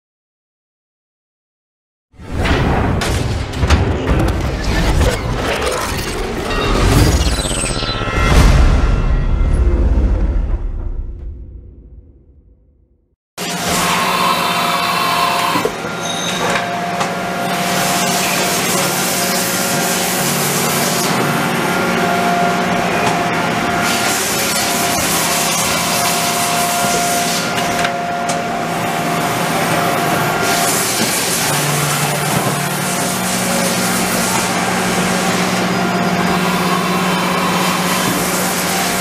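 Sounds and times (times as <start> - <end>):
thin machine whine: 4.8 - 10.0, 13.4 - 39.0
machine hum: 13.4 - 39.0.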